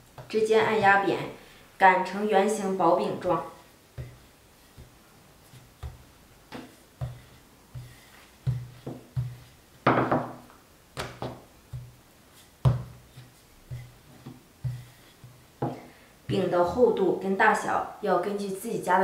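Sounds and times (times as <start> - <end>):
rolling pin thudding on wooden board: 3.1 - 16.5.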